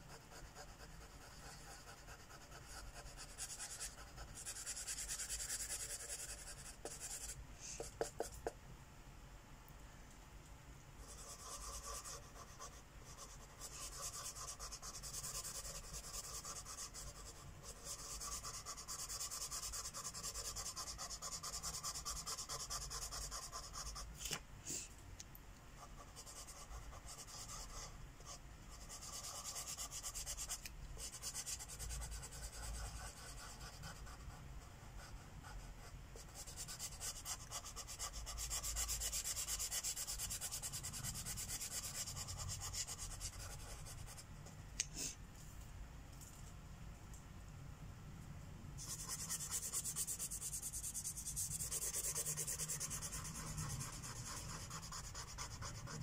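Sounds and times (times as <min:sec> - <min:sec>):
marker rubbing on paper: 0:00.0 - 0:08.5, 0:11.0 - 0:24.8, 0:25.9 - 0:34.2, 0:48.8 - 0:56.0.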